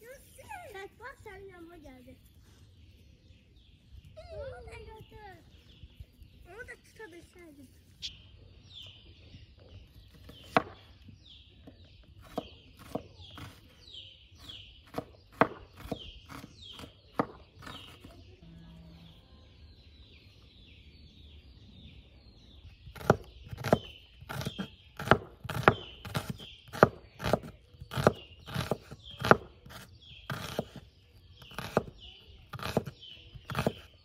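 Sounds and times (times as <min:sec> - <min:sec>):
knife chopping on wooden board: 0:14.8 - 0:18.1, 0:23.0 - 0:30.8, 0:31.5 - 0:31.9, 0:32.5 - 0:33.9.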